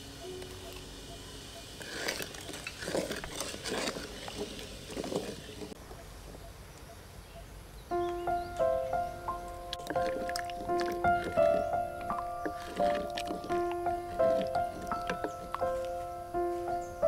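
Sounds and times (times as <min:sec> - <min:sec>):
music: 0:07.9 - 0:17.0
spoon stirring in metal pot: 0:09.8 - 0:15.7.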